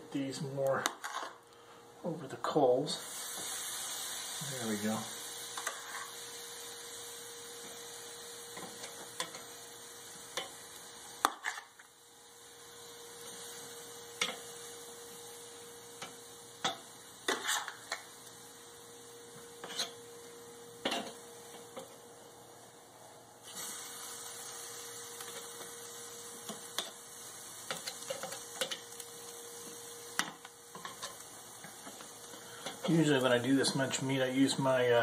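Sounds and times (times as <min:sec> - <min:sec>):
faint steady hum: 0:00.0 - 0:35.0
metal tongs clicking on grill grate: 0:27.7 - 0:29.0.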